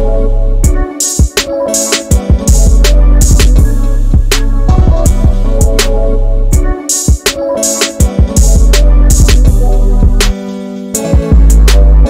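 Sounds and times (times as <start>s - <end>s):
background music with drum beat: 0.6s - 6.0s, 6.6s - 12.0s
deep bass line: 2.5s - 6.7s, 8.4s - 10.4s, 11.2s - 12.0s.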